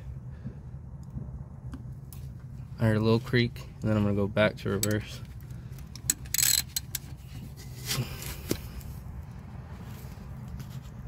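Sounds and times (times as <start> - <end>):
rusted bolt creaking and scraping: 4.6 - 9.0
socket wrench clicks: 5.8 - 7.0.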